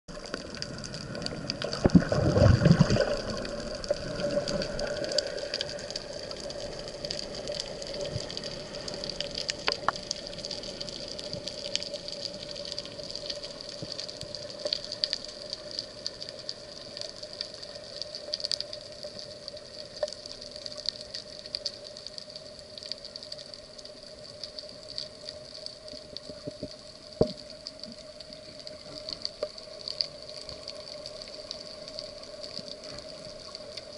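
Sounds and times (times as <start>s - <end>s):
crackle of clicks: 0.1s - 33.9s
underwater rushing water: 0.1s - 33.9s.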